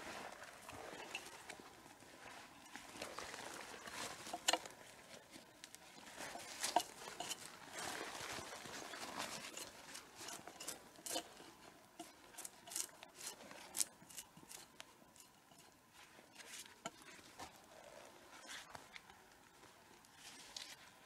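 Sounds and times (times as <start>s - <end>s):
hatchet chopping and scraping log: 9.0s - 15.7s.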